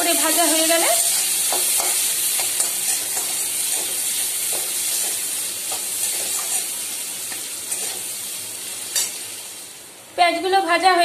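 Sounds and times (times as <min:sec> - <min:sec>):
onions sizzling in hot oil: 0:00.0 - 0:10.1.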